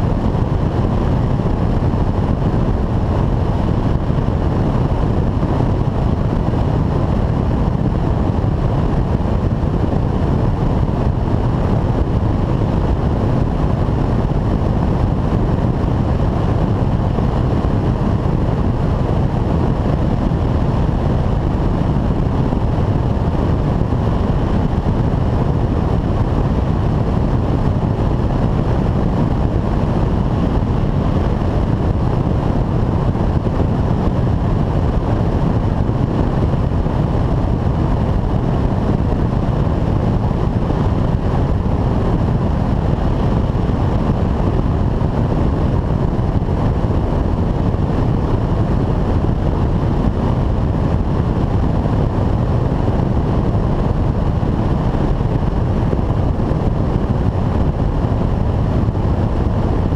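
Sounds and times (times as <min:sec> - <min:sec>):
airflow rushing over microphone: 0:00.0 - 0:59.9
light aircraft engine drone: 0:00.0 - 0:59.9.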